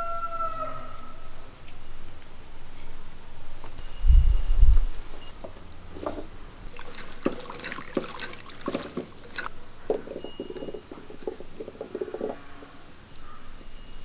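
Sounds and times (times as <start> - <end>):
water sloshing and splashing: 6.0 - 12.7.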